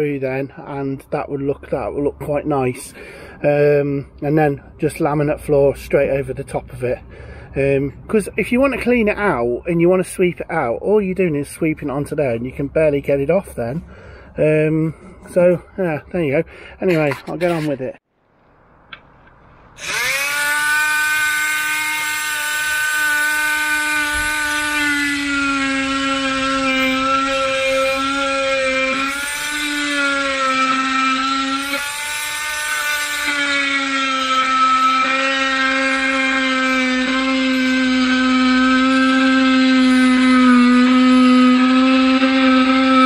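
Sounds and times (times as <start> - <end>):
multi-tool buzzing cutting wood: 16.8 - 18.0, 19.8 - 43.0.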